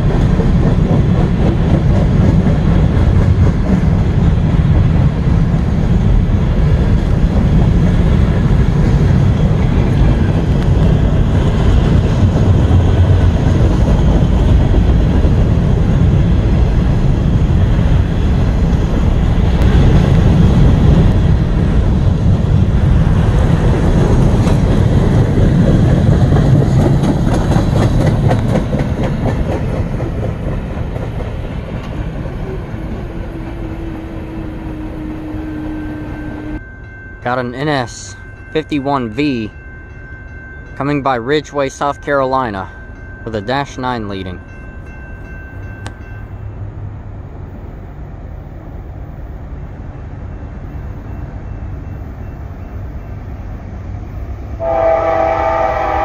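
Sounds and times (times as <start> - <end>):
train wheels rumbling on rail: 0.0 - 56.0
wheels clicking over rail joints: 23.3 - 33.6.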